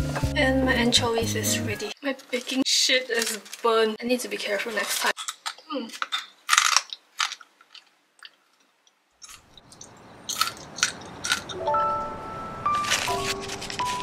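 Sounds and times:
soft background music: 0.0 - 2.0, 11.6 - 14.0
crisp crunching while chewing: 4.9 - 11.6, 12.7 - 14.0.

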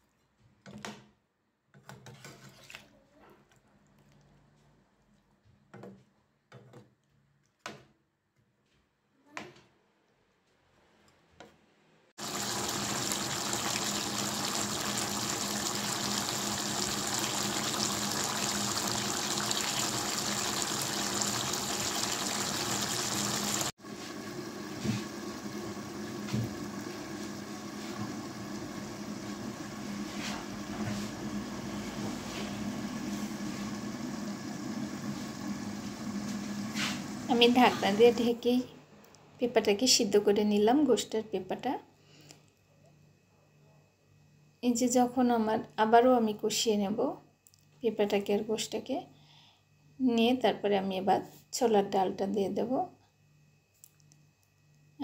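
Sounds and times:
curry sizzling in a pan: 12.2 - 38.3.

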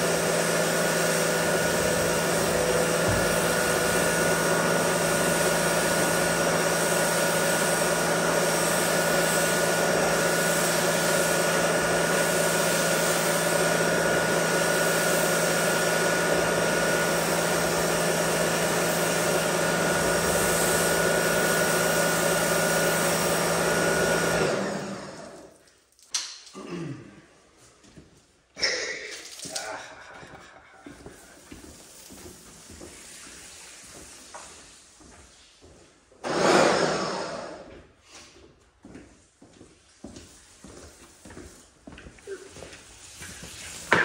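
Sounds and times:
pressure washer motor hum: 0.0 - 25.6, 36.2 - 37.6.

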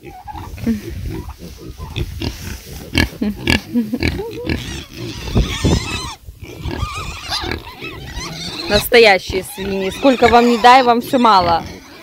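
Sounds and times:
pigs grunting: 0.0 - 12.0
pigs squealing: 0.0 - 12.0.

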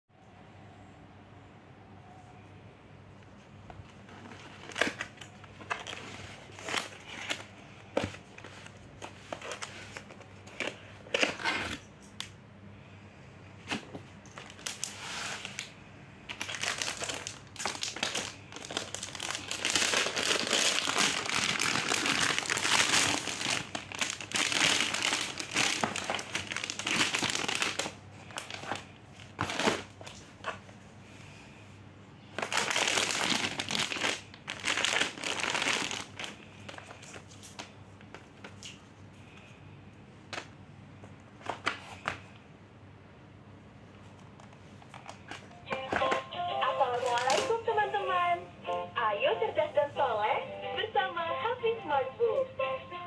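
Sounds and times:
plastic wrapping crinkling: 4.0 - 12.3, 13.7 - 30.7, 32.3 - 38.8, 46.8 - 47.8.

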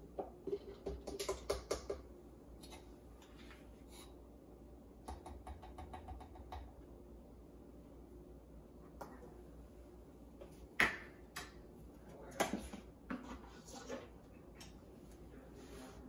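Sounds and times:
plastic containers clicking and knocking: 0.2 - 2.0.

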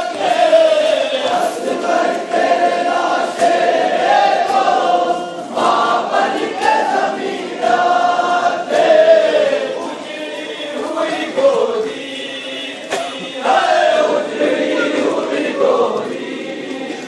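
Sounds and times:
men chanting a lament: 0.0 - 17.0.

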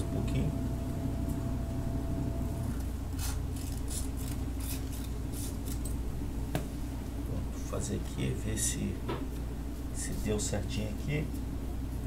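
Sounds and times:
scissors cutting sandpaper: 3.2 - 5.9.

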